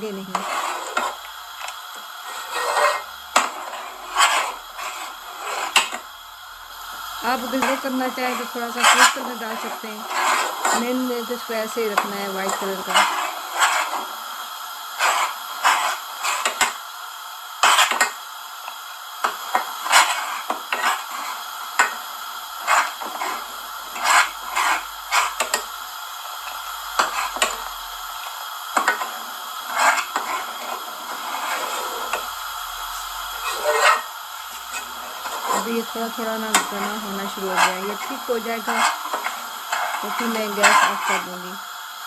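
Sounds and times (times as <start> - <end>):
spoon scraping a saucepan: 0.3 - 1.3, 2.3 - 6.0, 7.3 - 14.1, 15.0 - 16.8, 17.6 - 18.2, 19.2 - 22.0, 22.6 - 25.7, 26.5 - 27.7, 28.8 - 41.4.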